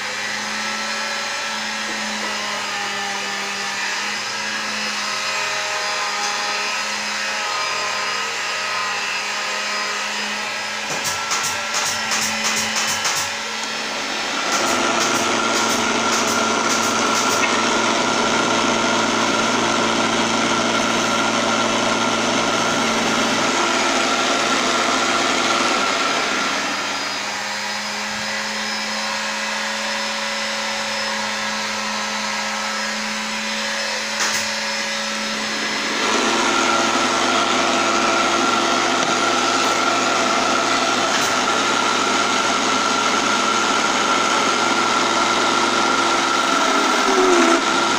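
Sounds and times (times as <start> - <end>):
lathe motor whining: 0.0 - 47.9
chisel scraping spinning wood: 14.6 - 25.2, 46.2 - 47.9.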